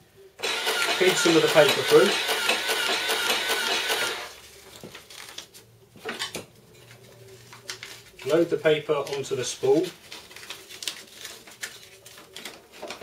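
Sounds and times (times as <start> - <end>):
paper-feed motor buzz: 0.4 - 4.3
paper clicks and rustles: 4.4 - 13.0.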